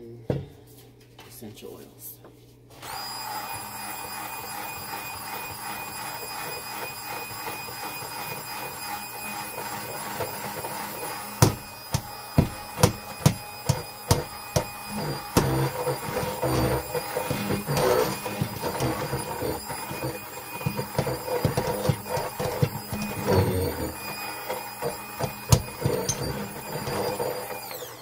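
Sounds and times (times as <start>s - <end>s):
stick blender motor whining: 2.8s - 28.0s
blender head knocking on pot: 11.4s - 24.2s.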